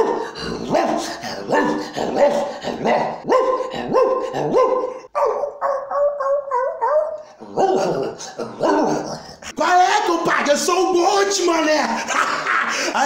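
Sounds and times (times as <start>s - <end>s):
man imitating dog barks: 0.0s - 9.6s
man imitating wavering dog whine: 5.5s - 9.3s.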